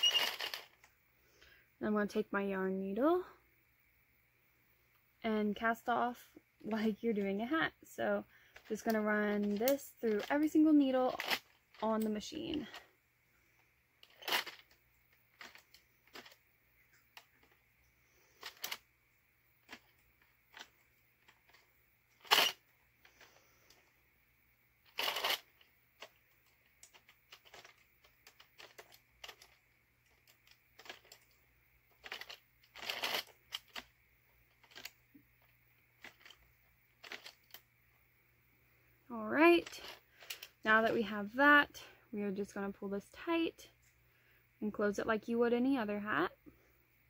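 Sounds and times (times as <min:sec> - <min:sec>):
knitting machine clicks: 0:00.0 - 0:00.7, 0:22.2 - 0:22.6, 0:24.9 - 0:26.2, 0:32.0 - 0:33.9
yarn rustling: 0:00.0 - 0:00.9, 0:24.8 - 0:37.6.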